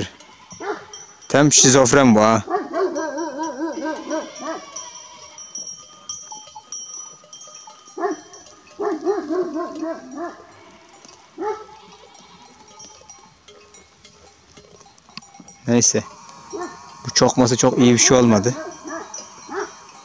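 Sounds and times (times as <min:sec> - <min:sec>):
dog barking: 0:00.6 - 0:00.9, 0:02.4 - 0:04.7, 0:08.0 - 0:10.5, 0:11.4 - 0:11.8, 0:16.5 - 0:16.8, 0:18.5 - 0:19.8
faint high ringing: 0:03.5 - 0:20.0.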